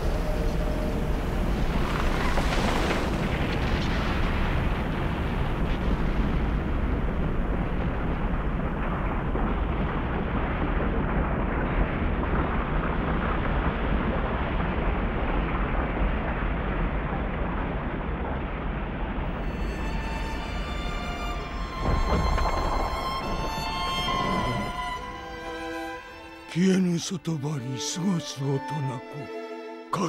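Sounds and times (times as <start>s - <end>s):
deep rumbling noise: 0.0s - 27.7s.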